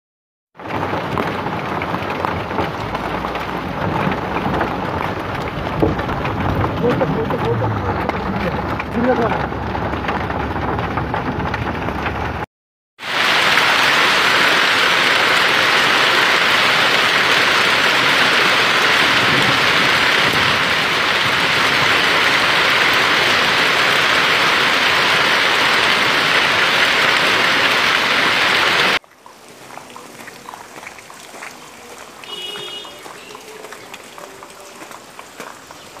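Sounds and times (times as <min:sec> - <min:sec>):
heavy hail pelting down: 0:00.6 - 0:29.0, 0:29.6 - 0:36.0
footsteps crunching through slush: 0:29.0 - 0:36.0.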